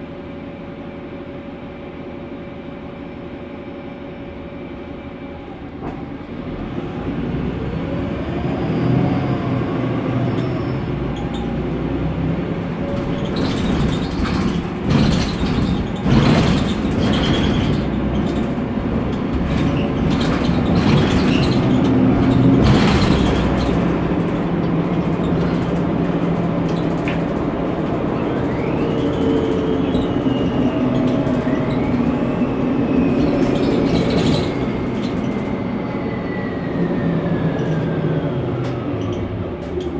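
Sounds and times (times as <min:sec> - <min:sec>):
bus engine running: 0:00.0 - 0:39.9
bus body rattling: 0:09.5 - 0:36.2, 0:37.4 - 0:39.9.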